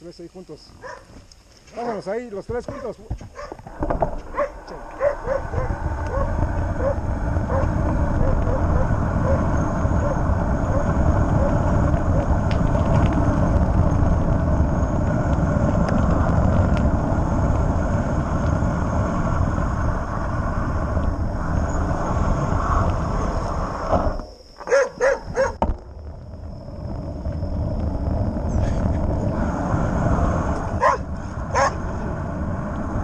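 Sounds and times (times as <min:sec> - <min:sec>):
dog barking: 0:00.8 - 0:01.1, 0:02.7 - 0:03.6, 0:04.3 - 0:08.6, 0:09.2 - 0:09.4, 0:24.7 - 0:25.6, 0:30.8 - 0:31.0, 0:31.6 - 0:31.8
wind rushing over microphone: 0:02.2 - 0:33.0.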